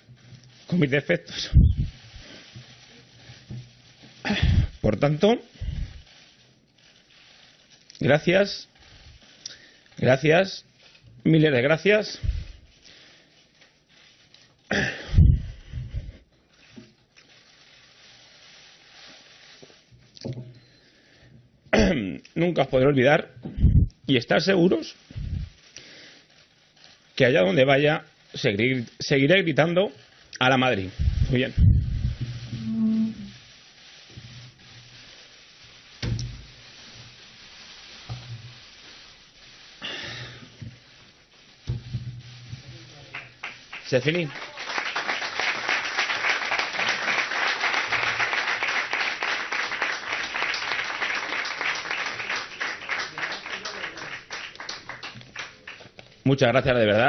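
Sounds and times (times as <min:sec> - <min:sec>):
room and microphone hiss: 0:00.0 - 0:57.0
man breathing heavily: 0:04.2 - 0:04.8.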